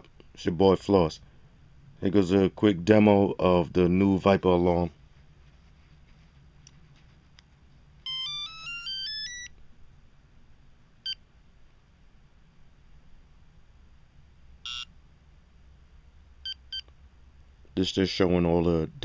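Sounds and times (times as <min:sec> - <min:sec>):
car alarm remote beeps: 0:14.6 - 0:14.9.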